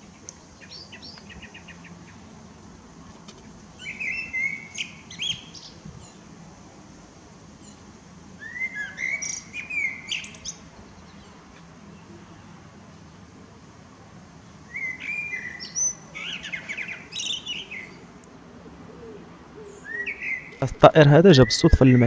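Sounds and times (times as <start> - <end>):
blackbird singing: 0.0 - 2.3, 3.8 - 6.2, 8.4 - 11.4, 14.6 - 22.0
faint ticking bird calls: 0.0 - 13.5, 14.3 - 22.0.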